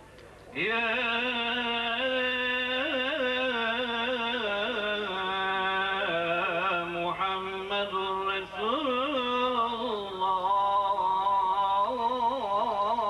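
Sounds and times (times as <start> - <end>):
man chanting: 0.5 - 13.0.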